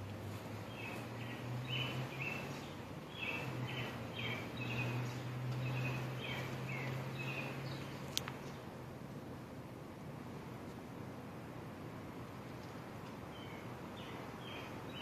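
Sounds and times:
songbird chirping: 0.0 - 8.7, 12.5 - 15.0
steady low hum: 0.0 - 15.0.

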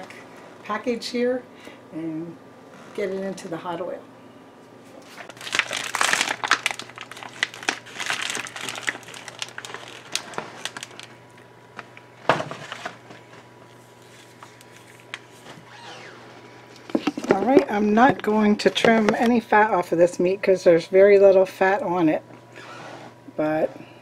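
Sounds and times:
plastic packaging crinkling: 5.1 - 16.1.

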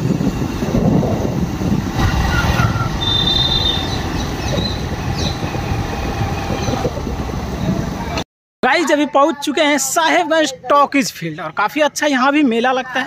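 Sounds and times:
vehicle moving along road: 0.0 - 8.2
wind rumbling on microphone: 0.0 - 8.2
high whistle-like tone: 2.0 - 4.8.

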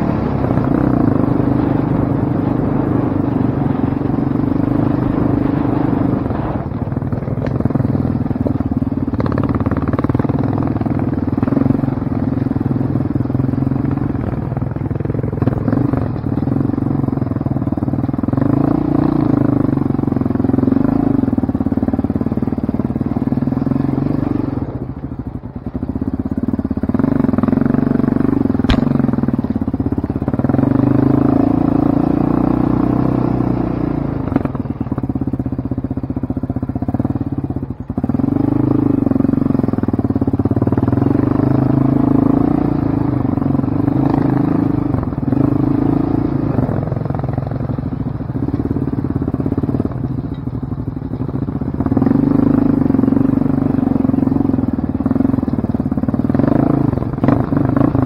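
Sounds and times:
off-road vehicle engine revving: 15.3 - 24.8, 26.9 - 34.7, 38.0 - 49.9, 51.7 - 58.0
sharp click: 28.6 - 29.2.

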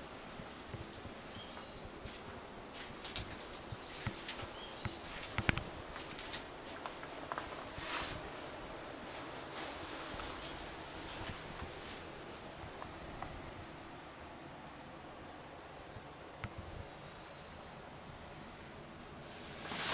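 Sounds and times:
rustling: 0.3 - 13.6, 18.5 - 19.9
soft footsteps: 0.4 - 13.5.

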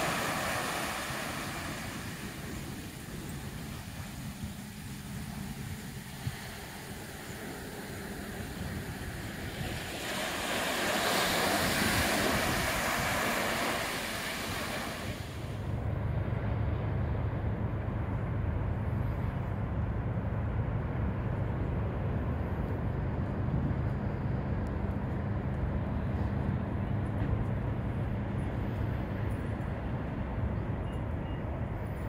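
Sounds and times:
waves washing on sandy beach: 0.0 - 17.3
steady low rumble: 0.0 - 32.0.

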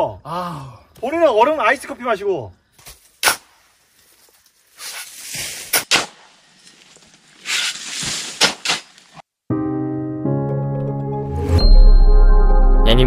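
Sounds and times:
shovels scraping muddy soil: 4.8 - 6.2, 7.4 - 9.2.

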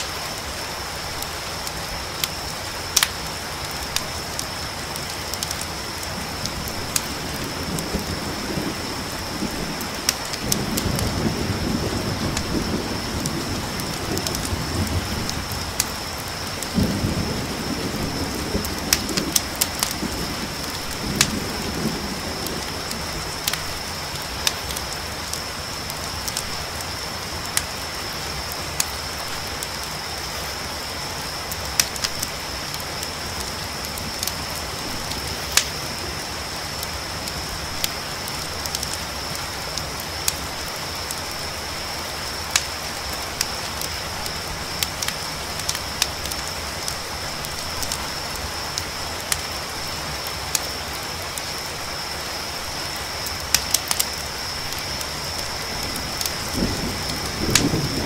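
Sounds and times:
campfire crackling: 0.0 - 58.0
crickets trilling: 0.0 - 58.0
steady rain: 0.0 - 58.0
thunder rumbling: 3.8 - 25.3, 54.6 - 58.0.

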